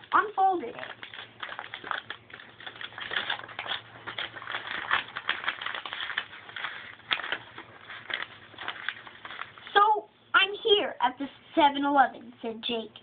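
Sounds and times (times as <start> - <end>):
paper map crinkling: 0.0 - 9.9.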